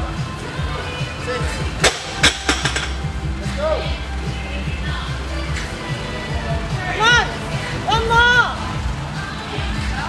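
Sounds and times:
background music: 0:00.0 - 0:10.0
barbell bouncing: 0:01.8 - 0:03.1.

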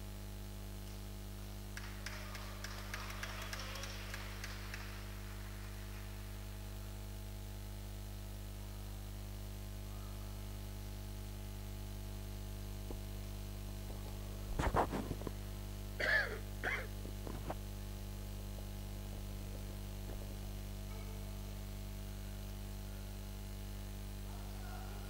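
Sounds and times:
low electrical hum: 0:00.0 - 0:25.0
sneeze or cough: 0:16.0 - 0:16.9.

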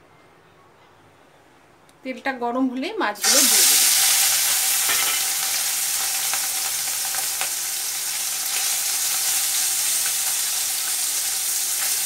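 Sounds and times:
fish sizzling in hot oil: 0:03.2 - 0:12.0.

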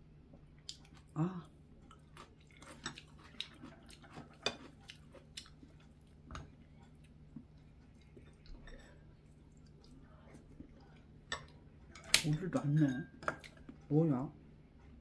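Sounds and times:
person chewing food: 0:00.3 - 0:12.3.

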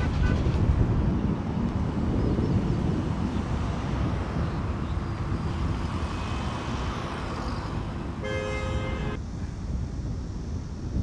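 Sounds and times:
car horn: 0:00.0 - 0:00.5, 0:08.2 - 0:09.2
road traffic rumbling: 0:00.0 - 0:11.0.

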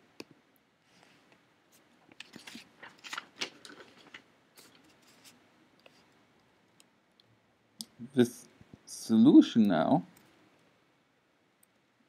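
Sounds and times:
low room hiss: 0:00.0 - 0:12.0
faint clicks and taps: 0:00.1 - 0:01.4.

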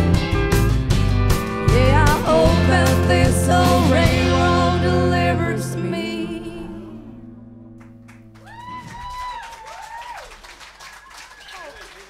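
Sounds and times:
audience applause and cheers: 0:07.8 - 0:12.0.

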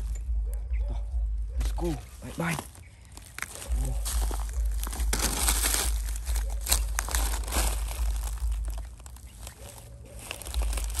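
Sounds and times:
dull low thuds: 0:00.0 - 0:02.2, 0:03.7 - 0:09.2
plastic trash crunching underfoot: 0:02.0 - 0:11.0.

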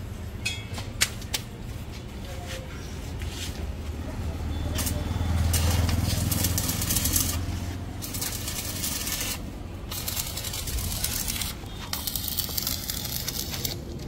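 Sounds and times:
welding arc crackling: 0:04.7 - 0:14.0.

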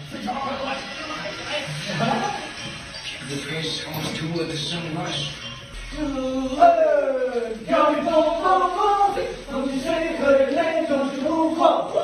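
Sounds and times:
men singing unaccompanied: 0:06.0 - 0:12.0.

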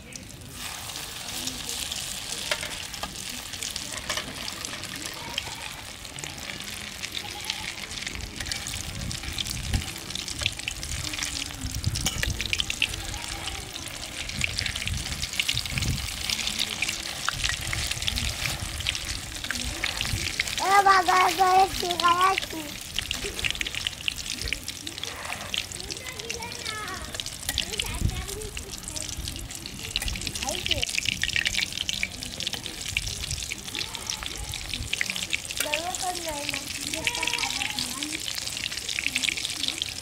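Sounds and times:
egg sizzling in oil: 0:00.0 - 0:40.0
metal spatula scraping pan: 0:03.8 - 0:06.0, 0:24.9 - 0:25.8.

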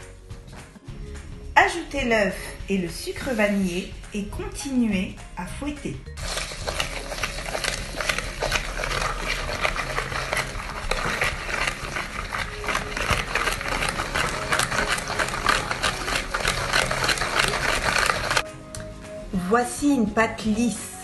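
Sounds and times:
hand whisk beating in a bowl: 0:06.2 - 0:18.5.

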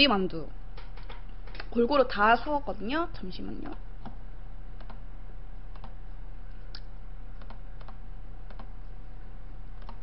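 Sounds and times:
low electrical hum: 0:00.0 - 0:10.0
computer keyboard typing: 0:05.7 - 0:06.0, 0:07.4 - 0:08.7, 0:09.8 - 0:10.0.

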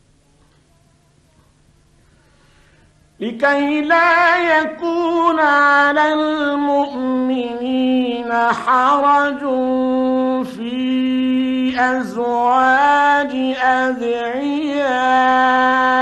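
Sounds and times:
man chanting melodic recitation: 0:03.2 - 0:16.0.

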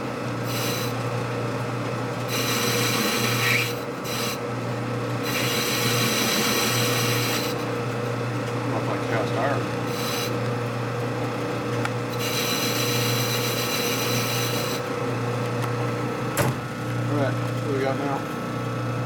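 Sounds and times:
machine tool motor hum: 0:00.4 - 0:01.2, 0:02.1 - 0:17.0
rasping metal cutting: 0:02.3 - 0:04.4, 0:05.2 - 0:07.7, 0:09.2 - 0:10.4, 0:12.1 - 0:14.9.

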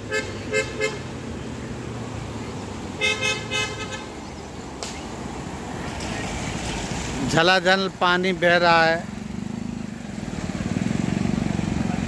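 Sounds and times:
vehicle horn beeping: 0:00.0 - 0:01.1, 0:03.0 - 0:04.1.

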